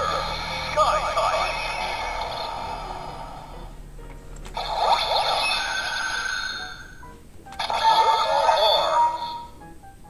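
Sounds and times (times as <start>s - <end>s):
electronic sound effect from toy speaker: 0.0s - 2.8s, 4.6s - 7.0s, 7.6s - 9.5s.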